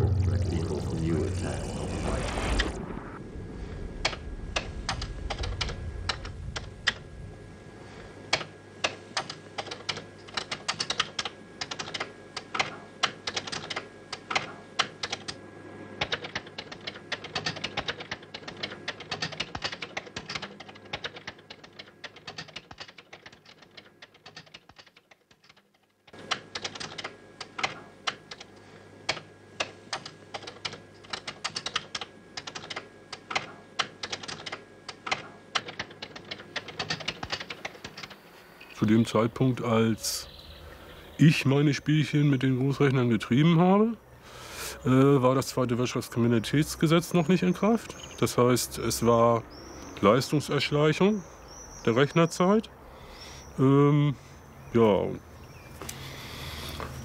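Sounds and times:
fast typing on keyboard: 9.2 - 15.4, 16.0 - 25.6, 26.3 - 28.5, 29.1 - 38.2.

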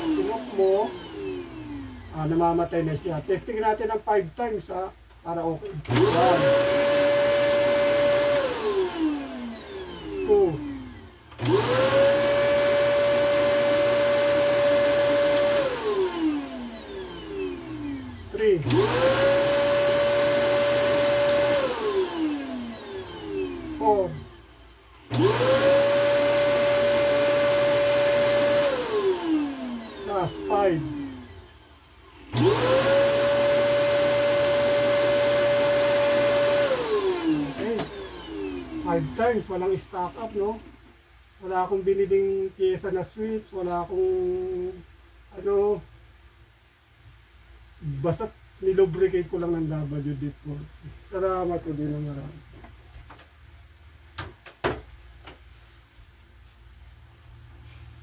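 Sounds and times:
vacuum cleaner motor whining: 0.0 - 3.1, 5.6 - 40.8
vacuum cleaner switch click: 15.2 - 16.0, 21.0 - 22.0, 36.2 - 38.2.

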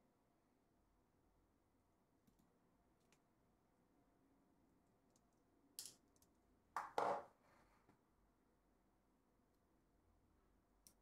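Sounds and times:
metal lens knocking on table: 6.8 - 7.3.

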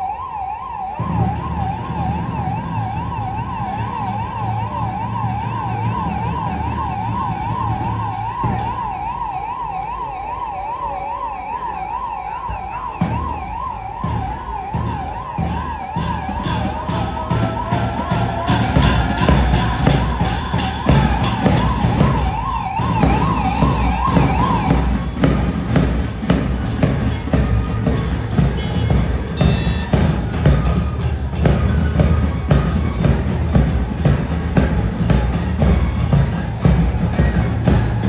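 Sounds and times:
police siren warbling: 0.0 - 26.1.

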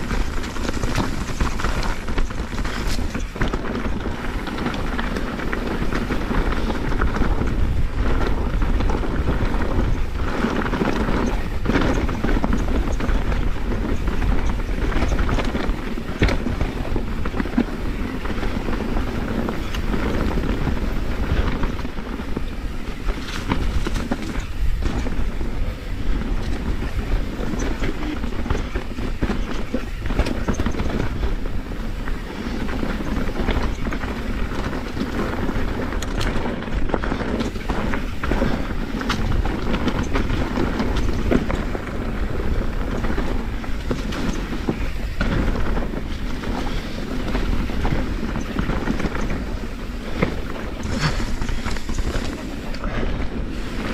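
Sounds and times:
bike rattling and knocking: 0.0 - 53.9
bike tyres rumbling over ground: 0.0 - 53.9
wind noise on microphone: 0.0 - 53.9.

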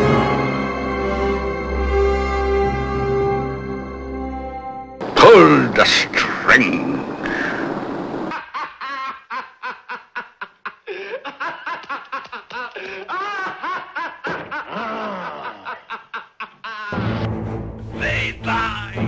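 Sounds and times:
man laughing maniacally: 8.3 - 17.0.

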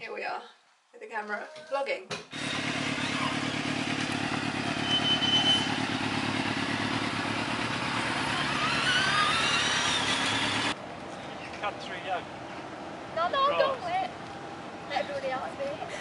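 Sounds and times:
vehicle engine running: 2.3 - 12.8.

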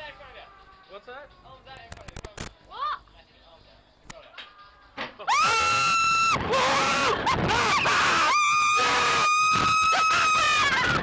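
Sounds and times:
riders screaming: 5.2 - 11.0.

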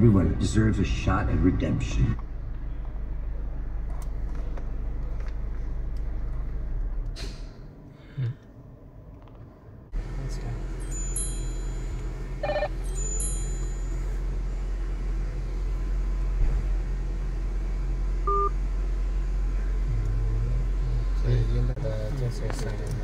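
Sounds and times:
steady low hum: 0.0 - 23.0
electronic beeps and tones: 12.4 - 12.7, 18.3 - 18.5.

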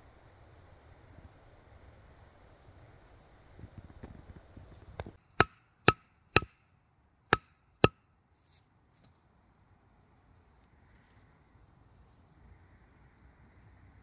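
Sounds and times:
soft rustling: 10.2 - 12.4.

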